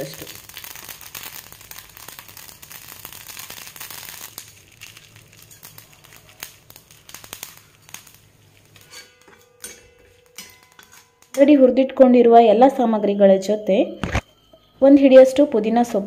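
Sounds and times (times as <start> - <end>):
seeds crackling in hot oil: 0.0 - 11.8.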